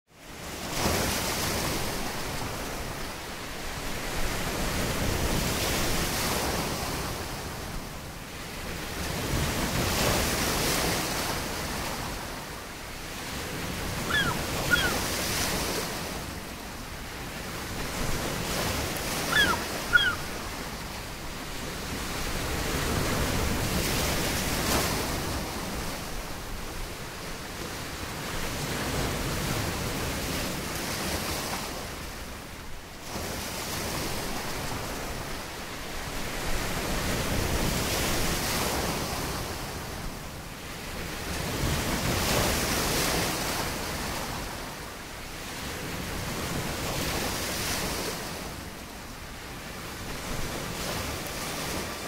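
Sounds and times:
waves breaking on shore: 0:00.1 - 0:52.0
bird two-note call: 0:14.1 - 0:15.0, 0:19.3 - 0:20.3.

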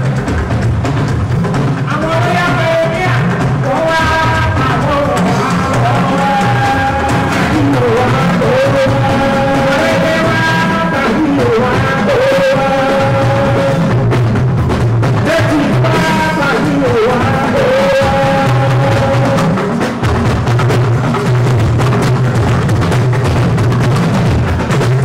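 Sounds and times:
drumming: 0:00.0 - 0:25.0
man singing into microphone: 0:01.8 - 0:14.2, 0:15.2 - 0:19.8.

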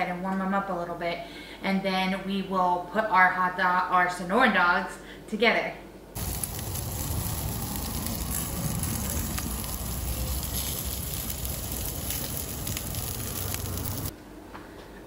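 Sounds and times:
hot dogs sizzling on a grill: 0:06.2 - 0:14.1
low rumble: 0:06.2 - 0:14.1.

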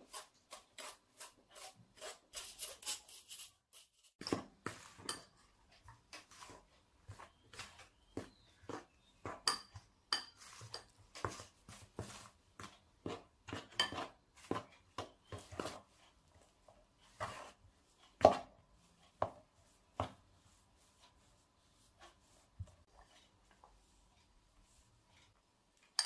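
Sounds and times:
metal spoon scraping plastic bowl: 0:00.0 - 0:05.5, 0:06.1 - 0:15.9.

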